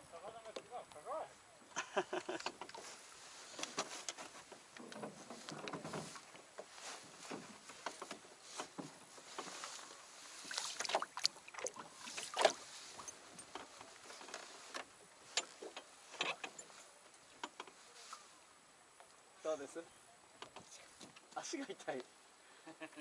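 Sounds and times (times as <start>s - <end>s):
knocks of gear in a boat: 2.2s - 9.9s, 12.2s - 17.8s.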